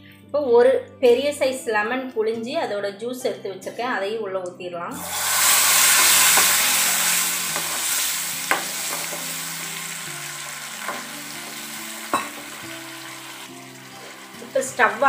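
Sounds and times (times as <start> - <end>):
lemon juice sizzling in hot oil: 5.0 - 15.0.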